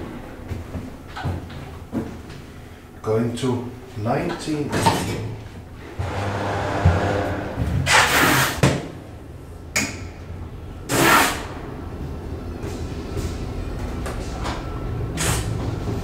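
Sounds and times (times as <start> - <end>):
elevator low hum: 5.4 - 7.9, 8.9 - 10.9, 11.6 - 16.0.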